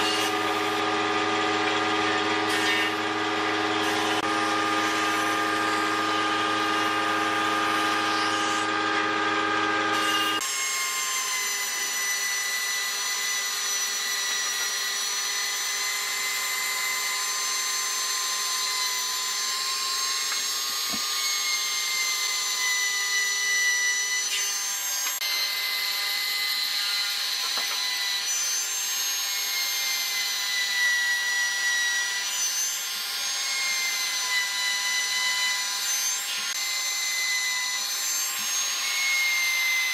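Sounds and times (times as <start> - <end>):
trim router whining: 0.0 - 39.9
low-pitched motor hum: 0.3 - 7.7.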